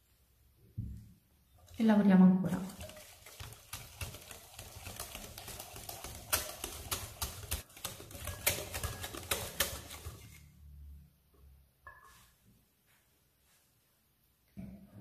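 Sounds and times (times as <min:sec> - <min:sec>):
whisk clicking against glass bowl: 0:02.5 - 0:10.4.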